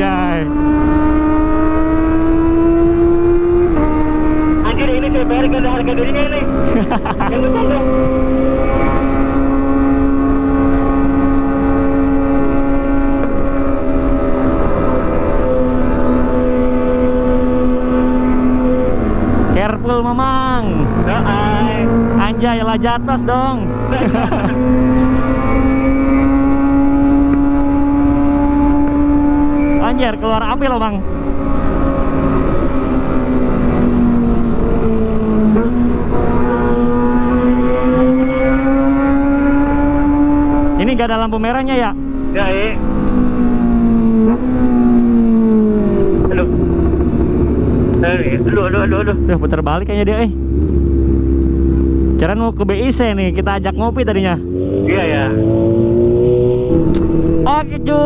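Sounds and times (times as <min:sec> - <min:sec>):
motorcycle engine cruising: 0:00.0 - 0:58.0
wind and road noise: 0:00.0 - 0:58.0
wind rumble on microphone: 0:42.9 - 0:49.2.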